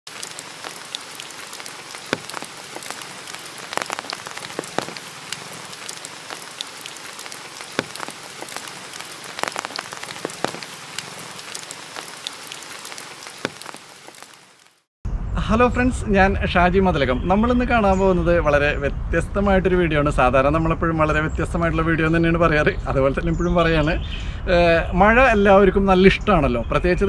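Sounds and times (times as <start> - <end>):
single raindrop strikes: 0.1 - 14.7
rain on leaves: 0.1 - 14.9.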